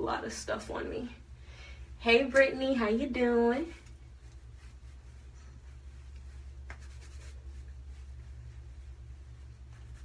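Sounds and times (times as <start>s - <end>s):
steady low hum: 0.0s - 10.0s
hands rustling through hair: 2.2s - 10.0s.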